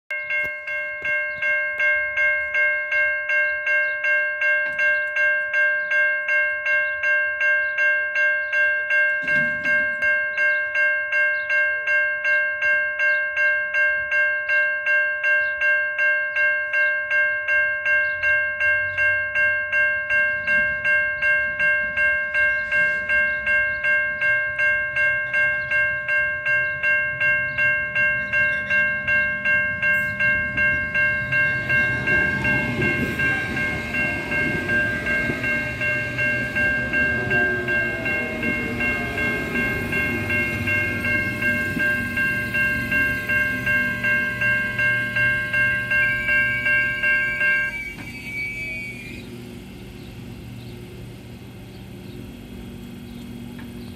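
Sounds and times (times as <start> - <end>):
level crossing bell ringing: 0.1 - 49.3
train wheels rumbling on rail: 9.1 - 10.6, 20.2 - 53.9
barrier alarm: 17.8 - 49.9
train whine falling in pitch: 28.2 - 53.9.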